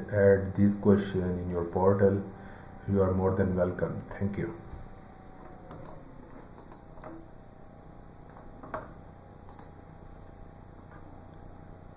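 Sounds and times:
low steady hum: 0:00.0 - 0:11.9
computer mouse or key clicks: 0:06.6 - 0:07.2, 0:09.5 - 0:09.7.

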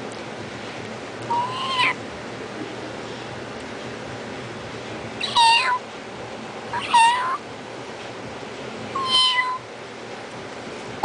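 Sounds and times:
kitten crying: 0:01.3 - 0:02.0, 0:05.2 - 0:05.8, 0:06.7 - 0:07.4, 0:08.9 - 0:09.7.

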